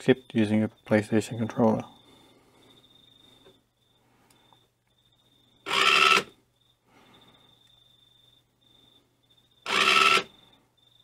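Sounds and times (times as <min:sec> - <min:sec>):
toy car motor and gears whirring: 0:05.7 - 0:06.3, 0:09.6 - 0:10.3.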